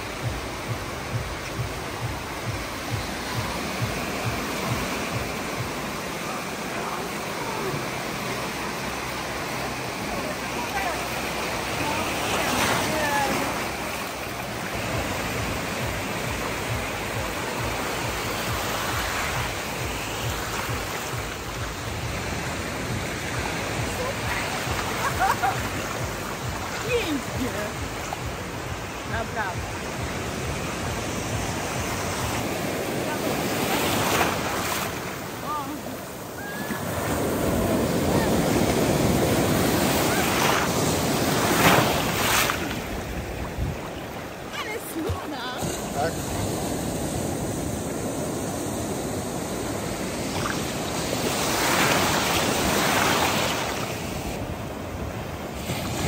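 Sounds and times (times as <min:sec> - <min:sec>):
sea surf rushing: 0:00.0 - 0:56.0
wind buffeting microphone: 0:35.5 - 0:51.4.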